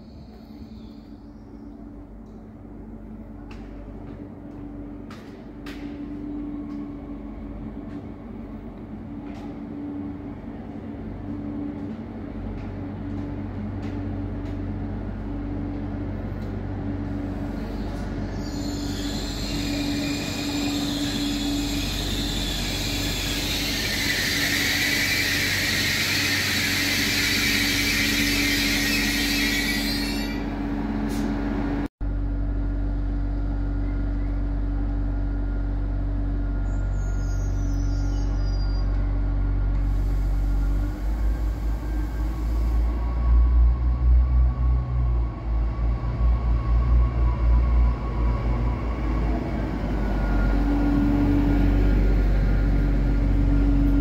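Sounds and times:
wheels and brakes squealing: 17.3s - 31.4s, 36.4s - 43.7s
diesel engines droning: 30.4s - 54.0s.

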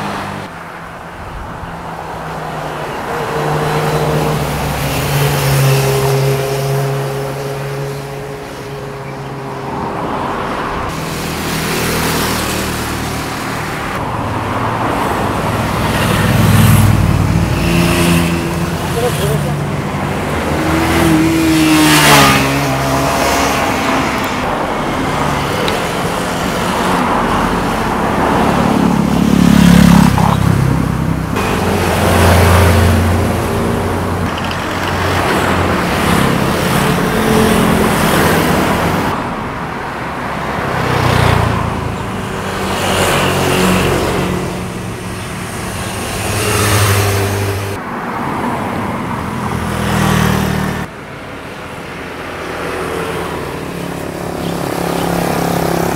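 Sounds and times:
motorcycles revving past: 10.9s - 39.2s, 40.7s - 47.8s.

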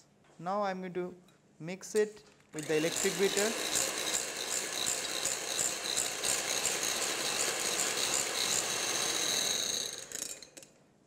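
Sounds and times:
electric hand mixer whirring: 2.6s - 10.4s.

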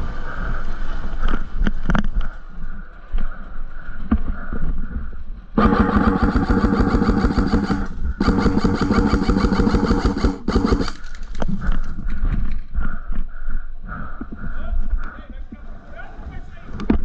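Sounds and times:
airsoft gun firing bursts: 5.6s - 11.2s.

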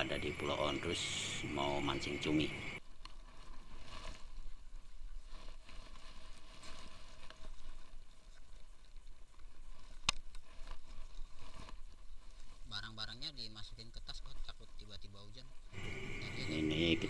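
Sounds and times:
rustling of bags and gear: 1.3s - 17.0s.

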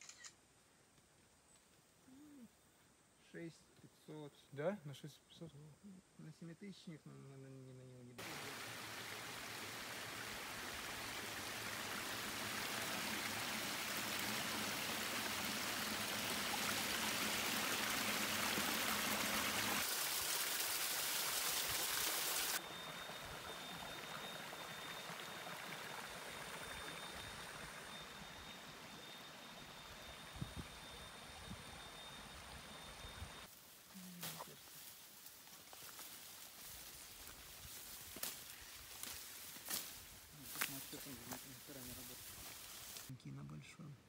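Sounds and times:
faint hiss: 0.0s - 44.0s
water splashing over rocks: 8.2s - 27.2s
steady high-pitched tone: 22.6s - 33.5s.

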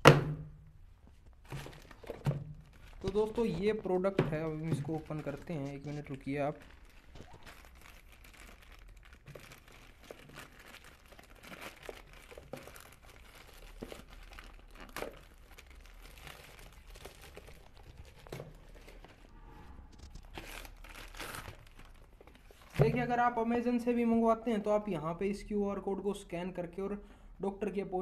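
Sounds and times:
plastic mailer bag crinkling and tearing: 1.4s - 19.3s, 20.2s - 22.9s.

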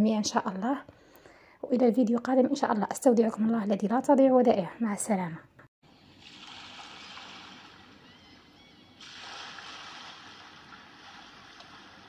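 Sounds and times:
waves breaking on shore: 6.2s - 8.1s, 9.0s - 12.0s.

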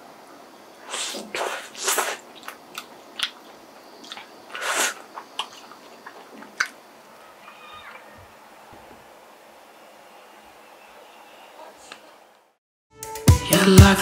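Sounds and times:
toast crunching while chewed: 1.3s - 6.8s.

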